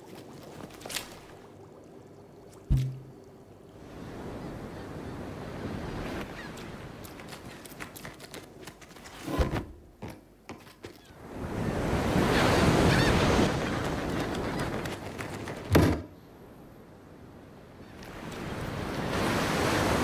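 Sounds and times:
short thud: 0:02.7 - 0:03.1
ocean surf crashing: 0:11.2 - 0:14.9, 0:17.5 - 0:20.0.

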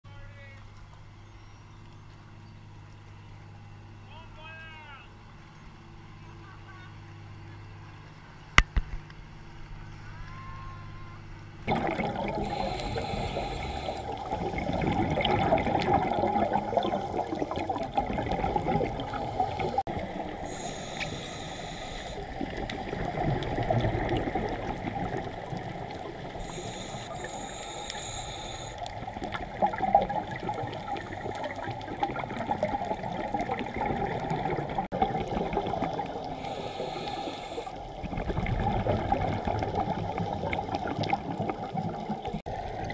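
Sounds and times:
boat engine humming: 0:00.1 - 0:40.8
muffled bubbly underwater noise: 0:11.7 - 0:42.9
scuba regulator hissing: 0:12.4 - 0:14.2, 0:20.5 - 0:22.3, 0:26.4 - 0:28.8, 0:36.4 - 0:37.8.

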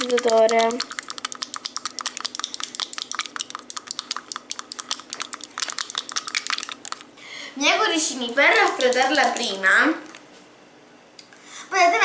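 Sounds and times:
plastic rod clicking against beaker: 0:00.0 - 0:07.1, 0:08.6 - 0:09.5.

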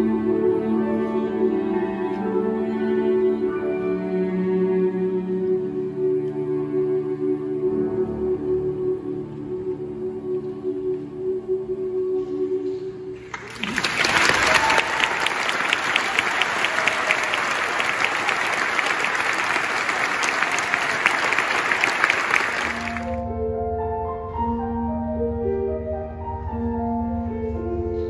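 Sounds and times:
audience applauding: 0:13.2 - 0:23.2.

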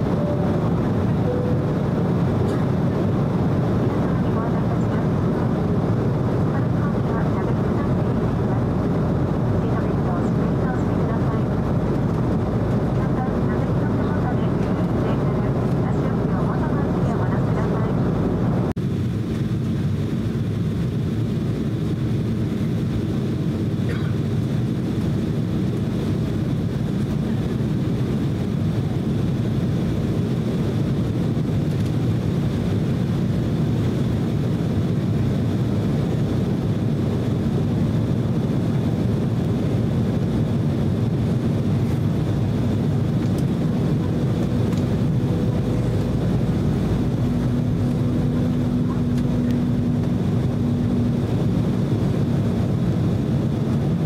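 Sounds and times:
faint high whine: 0:00.0 - 0:02.7
higher hum: 0:00.0 - 0:18.8, 0:33.6 - 0:54.0
steady hum: 0:00.0 - 0:31.0, 0:32.1 - 0:54.0
jet engine cabin roar: 0:00.0 - 0:54.0.

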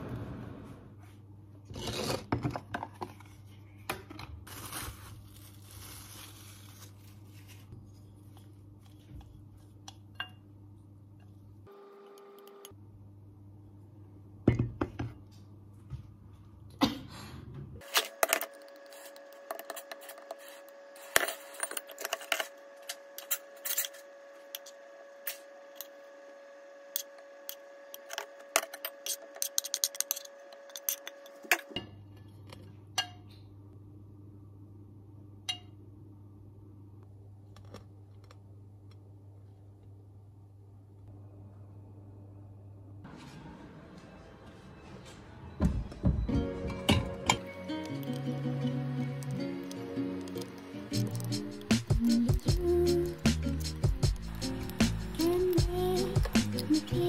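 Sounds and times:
steady hum: 0:47.2 - 0:57.0.

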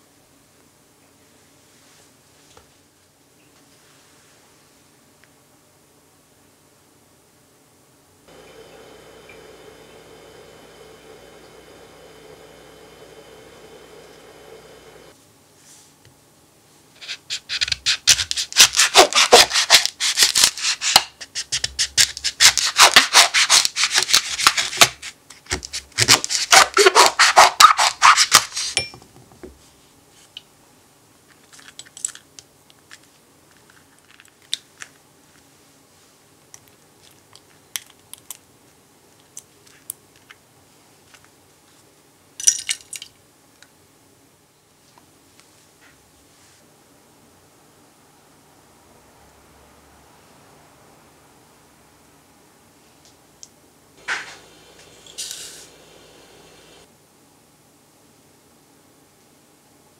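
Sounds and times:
knife sawing through fruit rind: 0:17.1 - 0:20.9, 0:26.3 - 0:28.8.

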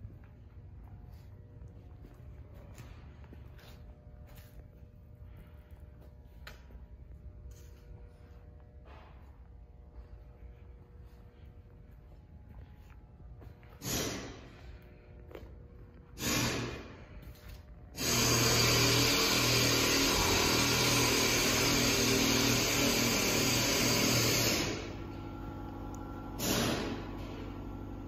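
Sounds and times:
steady hum: 0:00.0 - 0:28.0
compressed air hissing: 0:13.8 - 0:14.7, 0:16.2 - 0:17.1, 0:18.0 - 0:24.9.

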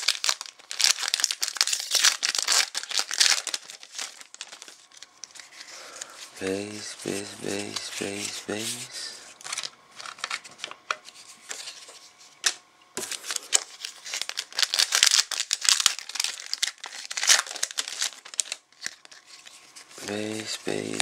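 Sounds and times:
plastic wrapper crinkling and tearing: 0:00.0 - 0:06.1, 0:09.4 - 0:11.9, 0:13.0 - 0:19.8.

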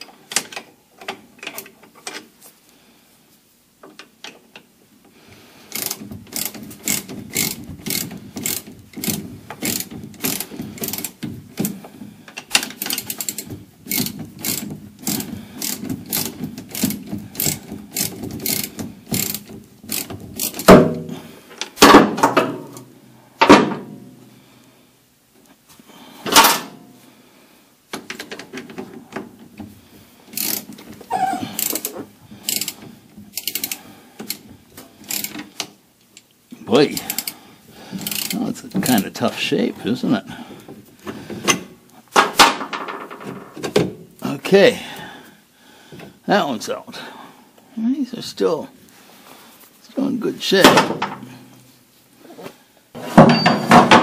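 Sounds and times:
ratchet wrench clicking: 0:05.7 - 0:11.2, 0:12.5 - 0:20.7, 0:30.3 - 0:30.7, 0:31.6 - 0:34.4, 0:35.0 - 0:35.5, 0:36.9 - 0:37.4, 0:38.0 - 0:38.4.

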